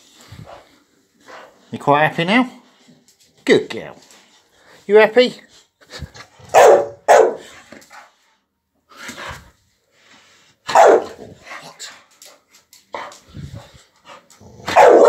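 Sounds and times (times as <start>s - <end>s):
dog barking: 6.5s - 7.5s, 10.7s - 11.2s, 14.6s - 15.0s.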